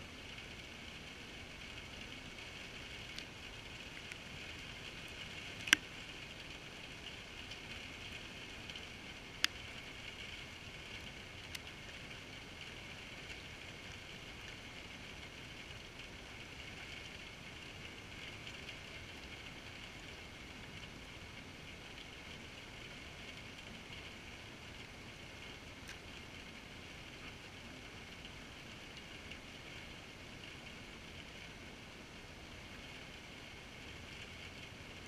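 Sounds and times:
rain hissing: 0.0s - 35.0s
raindrops tapping camera housing: 2.1s - 14.8s.

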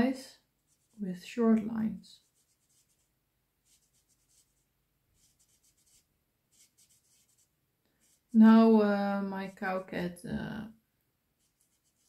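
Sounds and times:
marker scratching on paper: 0.7s - 1.0s, 2.2s - 8.4s, 11.4s - 12.0s.

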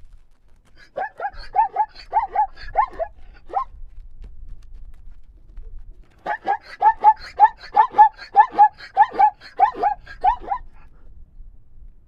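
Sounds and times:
zebra barking: 0.8s - 3.7s, 6.2s - 10.8s.

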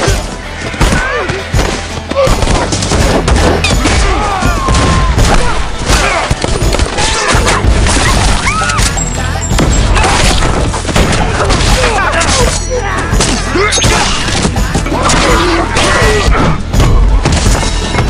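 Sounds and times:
rapid gunfire and impacts: 9.6s - 12.6s.

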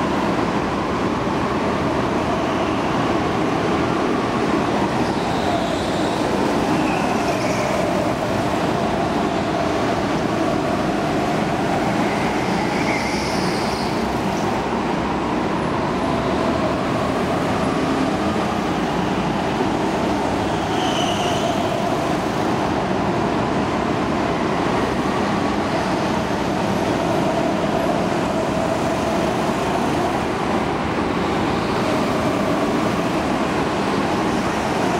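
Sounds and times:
short high squeal: 12.6s - 14.1s, 20.6s - 21.7s.

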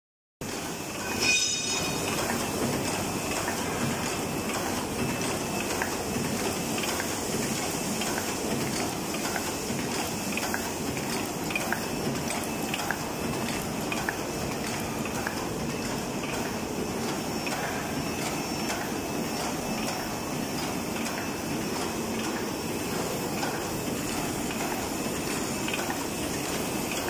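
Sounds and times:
high ringing tone: 0.8s - 2.6s.

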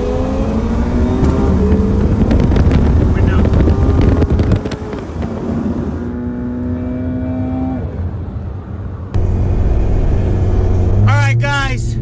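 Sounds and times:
car engine accelerating hard: 0.0s - 8.4s
road and wind noise: 0.0s - 12.0s.

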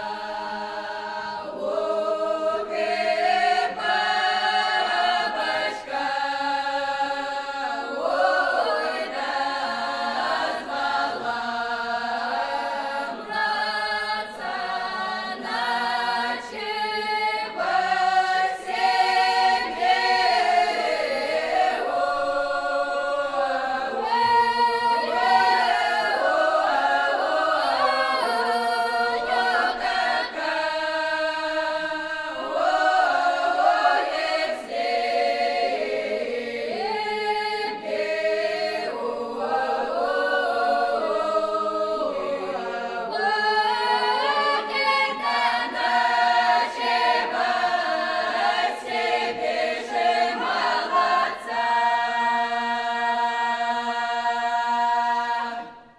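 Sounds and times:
women's choir singing a cappella: 0.0s - 55.9s.

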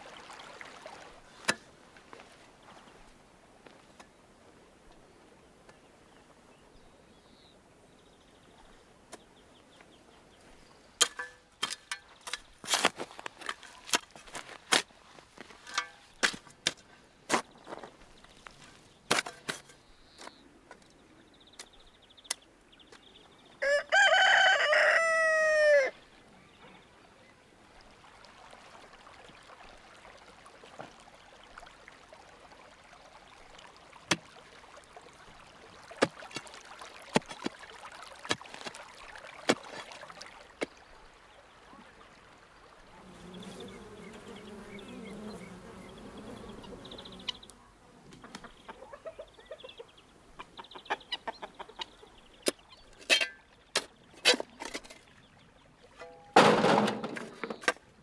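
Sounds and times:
rooster crowing: 23.6s - 26.0s.

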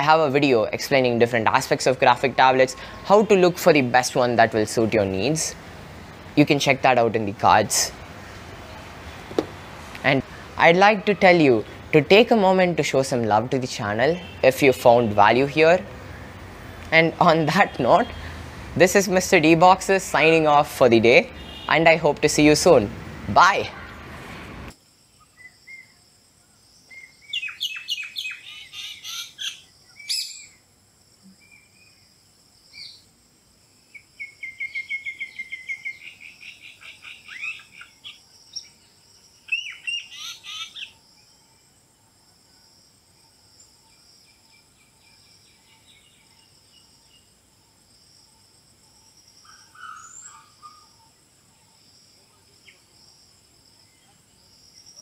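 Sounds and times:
birds chirping: 0.0s - 26.0s, 26.7s - 30.6s, 33.8s - 42.2s, 43.2s - 53.0s
insect drone: 24.2s - 55.0s
bird trill: 26.9s - 30.6s, 33.9s - 41.6s, 49.0s - 51.8s.

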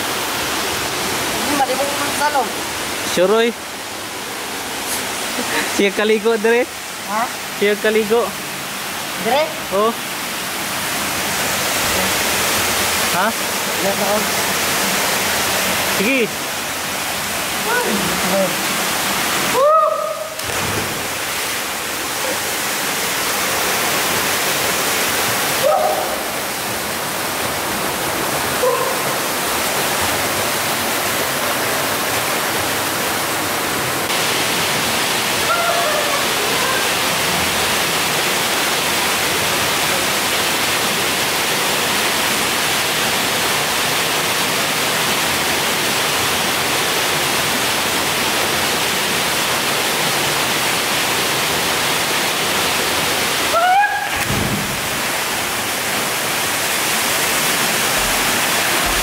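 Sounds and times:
waterfall rushing into pool: 0.0s - 59.0s
distant shouts: 19.5s - 20.4s, 25.6s - 26.3s, 35.4s - 36.9s, 53.5s - 54.2s.

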